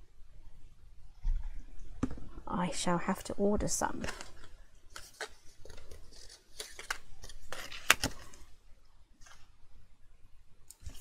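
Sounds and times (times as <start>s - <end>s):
paper rustling and scraping: 4.0s - 8.6s.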